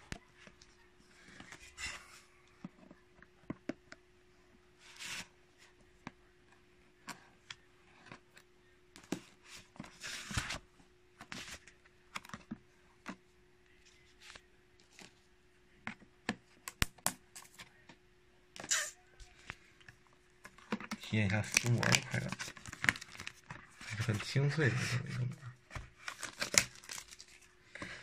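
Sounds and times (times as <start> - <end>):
shrink-wrap crackling: 21.0 - 24.3, 26.0 - 27.5
plastic rustling tears: 26.0 - 27.5.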